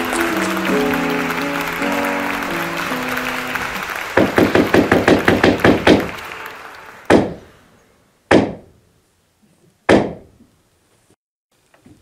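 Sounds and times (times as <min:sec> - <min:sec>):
wooden staff pounding on stage floor: 0:04.2 - 0:06.1, 0:07.1 - 0:07.4, 0:08.3 - 0:08.7.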